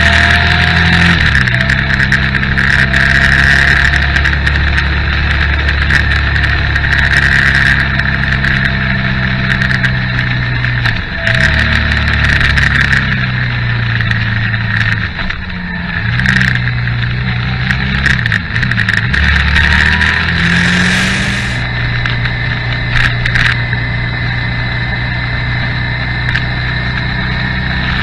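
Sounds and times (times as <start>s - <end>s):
motorcycle engine running: 0.0s - 28.0s
wind rushing: 19.6s - 21.7s.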